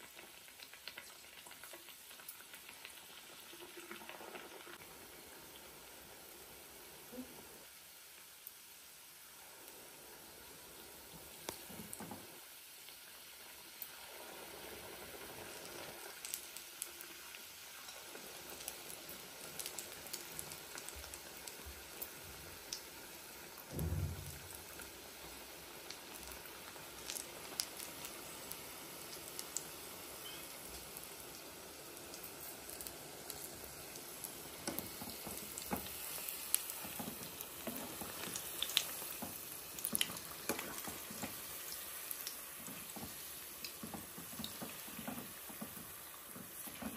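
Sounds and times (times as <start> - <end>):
food deep-frying in oil: 0.0 - 46.9
dull thump: 23.7 - 24.6.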